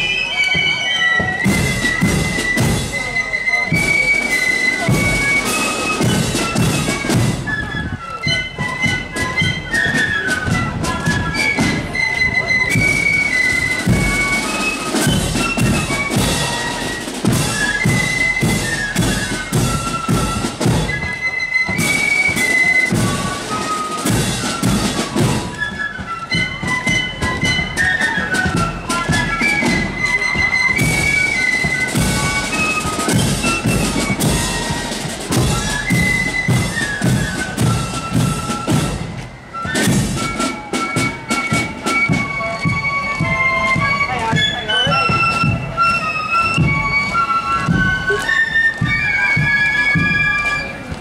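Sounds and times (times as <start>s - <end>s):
shrill flutes playing melody: 0.0s - 51.0s
steady drum beat: 1.2s - 7.5s, 28.4s - 39.2s.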